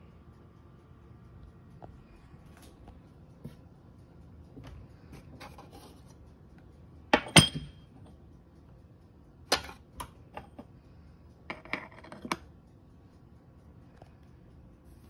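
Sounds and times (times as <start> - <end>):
metal clink with ring: 7.1 - 8.0
light metal clicks and taps: 9.5 - 10.8.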